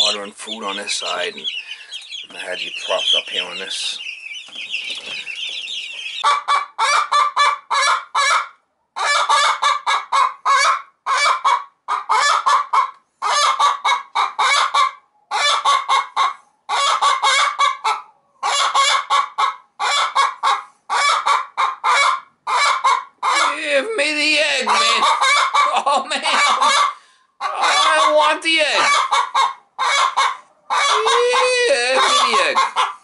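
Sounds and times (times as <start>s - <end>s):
hen squawking: 0.0s - 8.4s, 21.9s - 33.0s.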